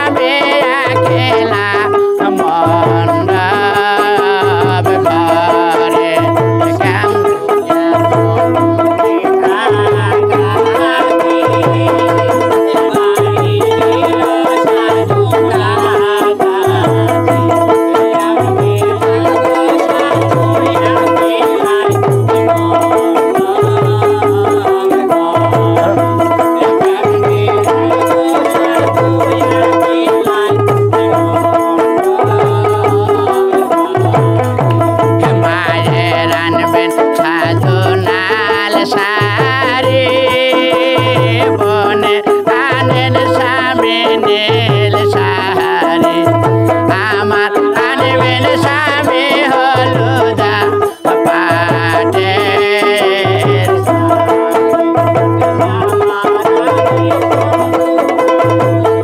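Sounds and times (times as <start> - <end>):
plucked string lute melody: 7.8 - 15.6, 42.5 - 59.0.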